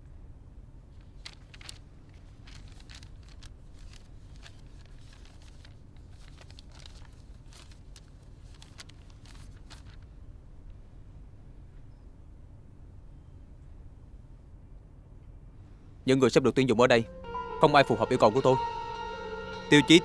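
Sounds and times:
low steady hum: 0:00.0 - 0:20.0
paper pages rustling: 0:00.9 - 0:10.2.

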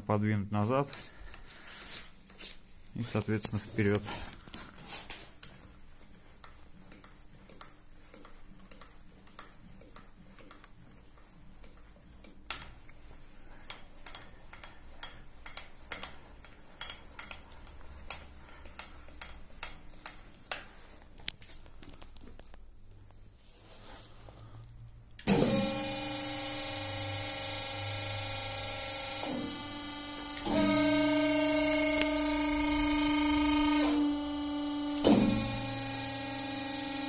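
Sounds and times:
small metallic taps: 0:11.6 - 0:13.0, 0:13.6 - 0:22.6.

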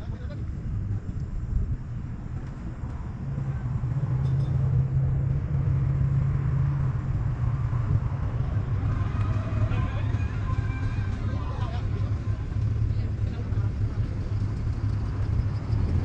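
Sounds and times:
engine humming: 0:00.0 - 0:16.0.

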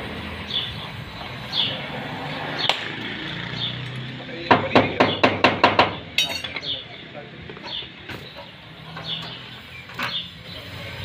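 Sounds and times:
gas welding torch hissing: 0:08.1 - 0:11.0.

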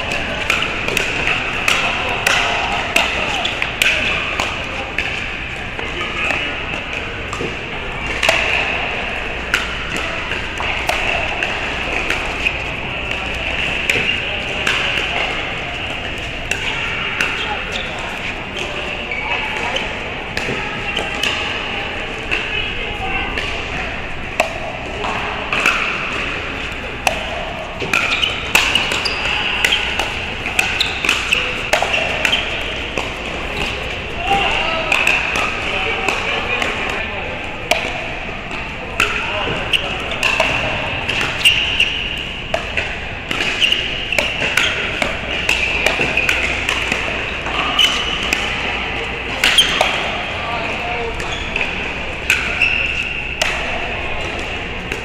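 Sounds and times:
paddles hitting pickleball: 0:00.0 - 0:22.5, 0:23.2 - 0:55.0
indoor hall background noise: 0:00.0 - 0:55.0
ball bouncing on court: 0:27.0 - 0:37.0, 0:37.7 - 0:48.5.

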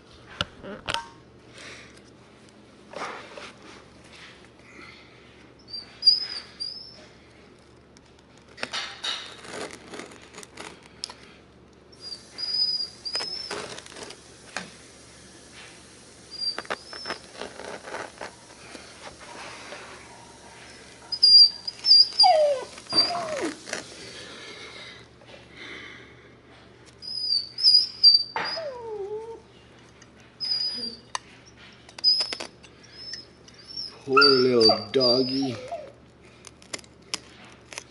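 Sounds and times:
dog whining and yelping: 0:05.6 - 0:07.2, 0:12.0 - 0:13.8, 0:16.3 - 0:18.0, 0:20.6 - 0:23.8, 0:27.0 - 0:29.5, 0:30.4 - 0:36.0.

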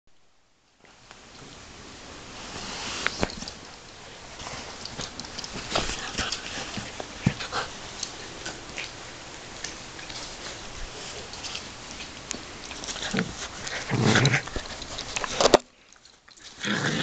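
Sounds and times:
puppy chewing rope toy: 0:09.6 - 0:16.6.

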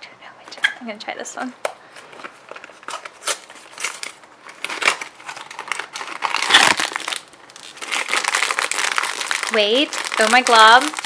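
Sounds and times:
foil bag crinkling: 0:02.0 - 0:11.0
cardboard box crinkling: 0:02.1 - 0:11.0.

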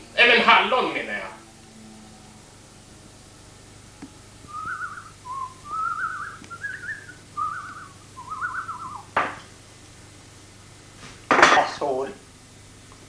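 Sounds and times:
person whistling a tune: 0:04.5 - 0:09.1
sharp knock: 0:09.1 - 0:09.5.

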